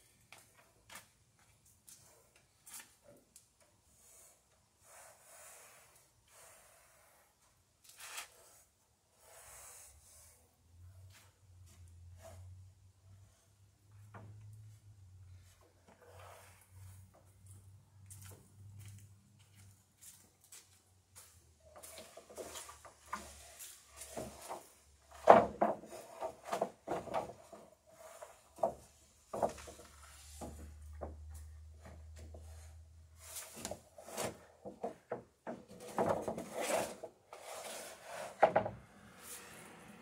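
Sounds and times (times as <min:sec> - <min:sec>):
wooden boards knocking and clattering: 0:25.1 - 0:27.5, 0:28.6 - 0:31.2, 0:34.6 - 0:36.5.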